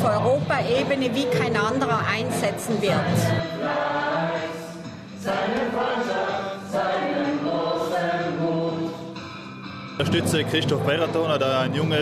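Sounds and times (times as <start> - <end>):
choir singing: 2.2 - 9.3.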